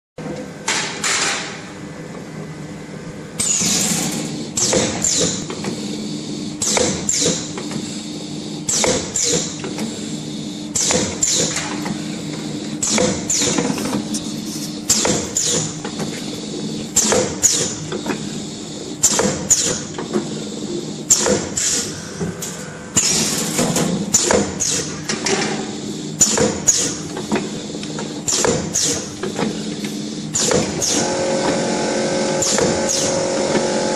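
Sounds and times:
steady motor hum: 0:01.6 - 0:33.9
machine mechanical clacks: 0:03.4 - 0:05.9, 0:06.6 - 0:07.9, 0:08.6 - 0:10.0, 0:10.7 - 0:18.3, 0:19.0 - 0:20.4, 0:21.0 - 0:33.9.

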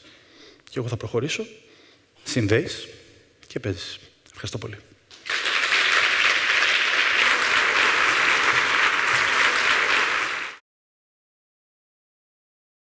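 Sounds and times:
audience applauding: 0:05.1 - 0:10.6.

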